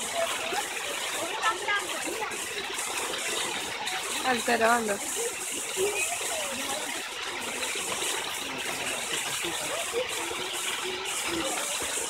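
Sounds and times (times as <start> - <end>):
running water rushing: 0.0 - 12.0.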